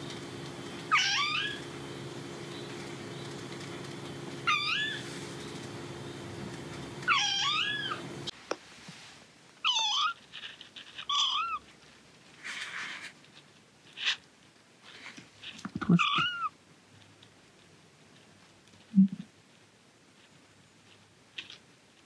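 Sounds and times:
kitten meowing: 0.9s - 1.6s, 4.4s - 5.0s, 7.0s - 8.0s, 9.6s - 10.2s, 11.0s - 11.6s, 15.9s - 16.5s
brief rustle: 10.2s - 14.2s.

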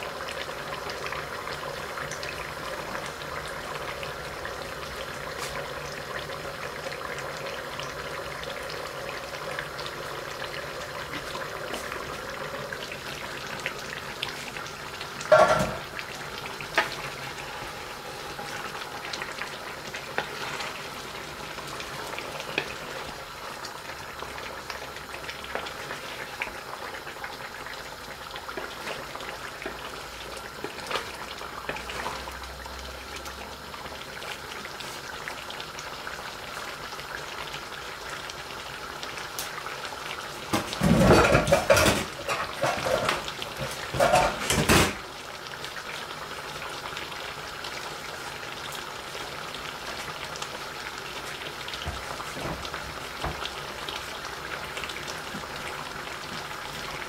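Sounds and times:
food sizzling in pot: 0.0s - 57.0s
metal lid clank: 15.3s - 15.8s.

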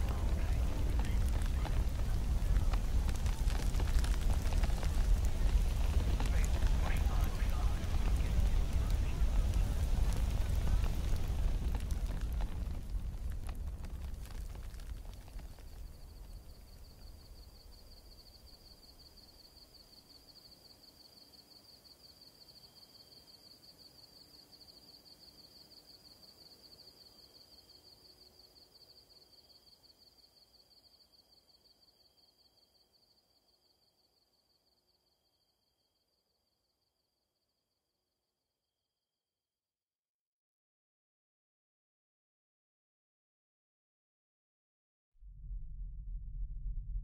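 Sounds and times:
low rumbling noise: 0.0s - 16.8s, 45.2s - 47.0s.

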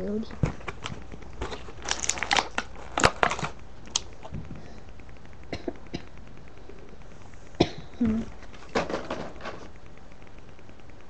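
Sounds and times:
plastic packaging cracking and clicking: 0.4s - 4.3s.

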